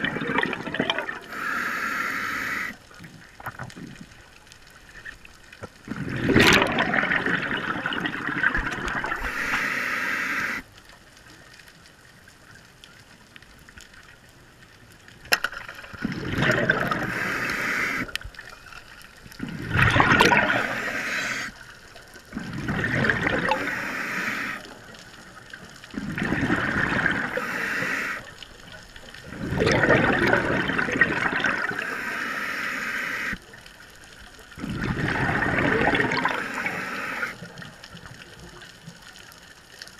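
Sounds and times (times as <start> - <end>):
air bubbling from scuba regulator: 0.0 - 2.8, 5.9 - 10.6, 15.9 - 18.2, 19.4 - 21.6, 22.3 - 24.8, 25.9 - 28.4, 29.2 - 33.4, 34.6 - 37.6.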